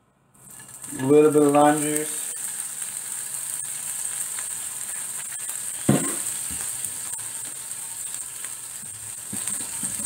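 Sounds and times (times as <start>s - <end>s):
oil sizzling in frying pan: 0.4s - 10.0s.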